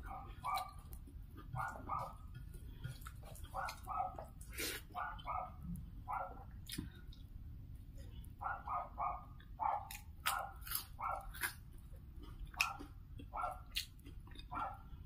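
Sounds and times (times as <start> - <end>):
dog barking: 0.0 - 0.9, 1.5 - 2.2, 3.5 - 6.6, 8.4 - 11.5, 12.5 - 13.8, 14.5 - 14.9.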